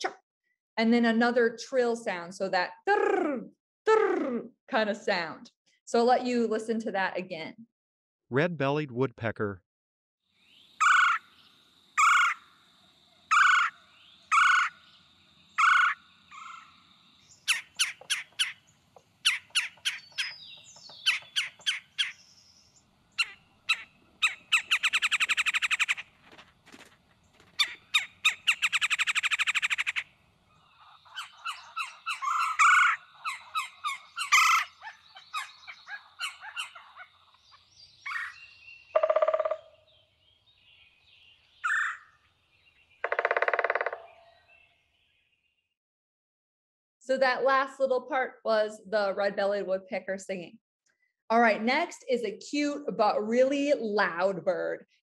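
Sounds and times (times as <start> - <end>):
woodpecker harsh chuck calls: 10.8 - 11.4, 12.0 - 12.5, 13.3 - 14.9, 15.6 - 22.4, 23.2 - 26.1, 27.5 - 39.9, 41.6 - 42.1, 43.0 - 44.3
woodpecker rolling trills: 10.8 - 12.5, 13.3 - 15.0, 15.6 - 40.0, 41.6 - 42.1, 43.0 - 44.2.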